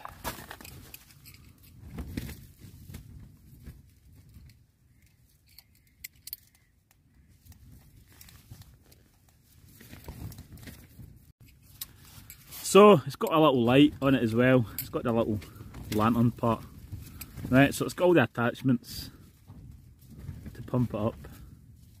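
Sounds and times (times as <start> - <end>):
handling rustles: 0.0 - 12.9.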